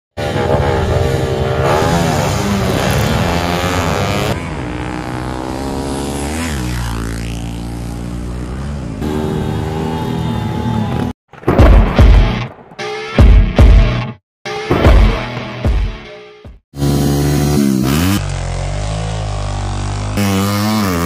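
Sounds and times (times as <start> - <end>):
motorcycle passing by: 0.2 - 11.1, 16.8 - 21.0
motorcycles revving hard: 0.2 - 11.2, 16.8 - 21.0.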